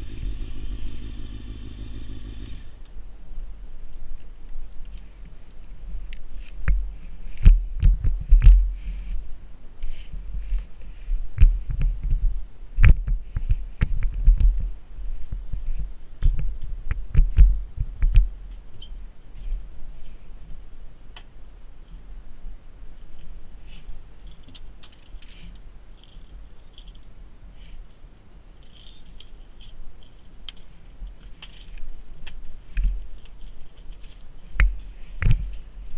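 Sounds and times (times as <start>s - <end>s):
low rumble: 0.0s - 4.8s
light clicks and rattles of handling: 22.9s - 28.0s, 28.6s - 35.9s.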